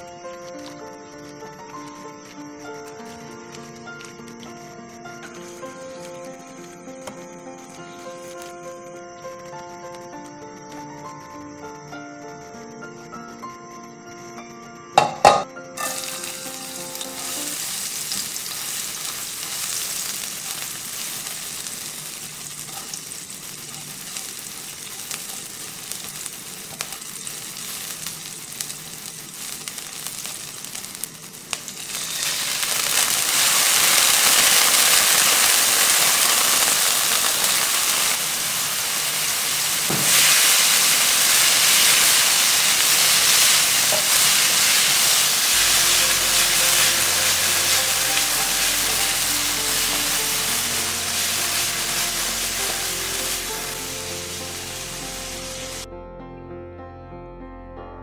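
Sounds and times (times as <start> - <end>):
food sizzling in hot oil: 0.0 - 2.1, 15.0 - 55.9
knock: 15.0 - 15.5, 39.9 - 40.2
spatula scraping a pan: 15.8 - 30.9, 37.4 - 54.4.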